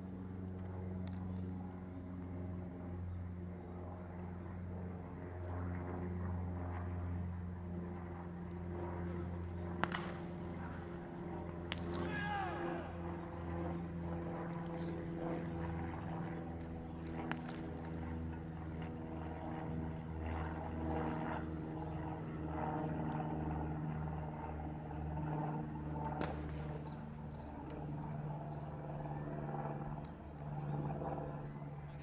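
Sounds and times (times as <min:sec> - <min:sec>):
low mechanical hum: 0:00.0 - 0:32.0
baseball bat cracks: 0:09.8 - 0:10.4, 0:11.6 - 0:12.6, 0:26.2 - 0:26.6.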